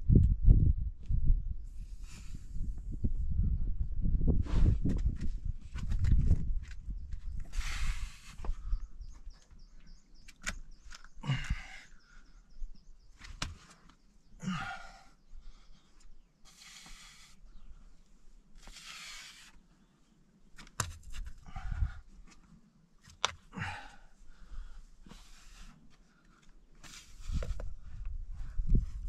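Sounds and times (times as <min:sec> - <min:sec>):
taps and scuffs on rock: 0:13.2 - 0:14.0, 0:20.6 - 0:21.4, 0:22.3 - 0:23.5
person grunting: 0:14.4 - 0:15.0.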